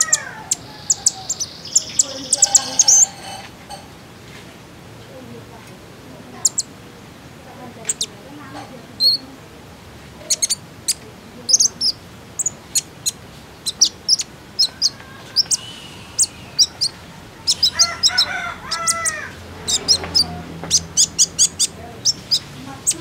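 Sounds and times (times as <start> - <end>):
bird high thin chirps: 0.0 - 3.8, 6.4 - 6.7, 10.2 - 23.0
lower drawn-out bird call: 13.6 - 21.7.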